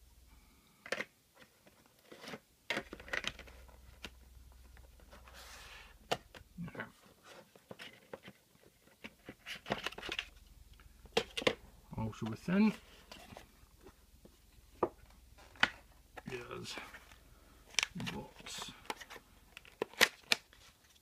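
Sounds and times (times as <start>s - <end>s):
rustling slide: 5.1s - 5.9s.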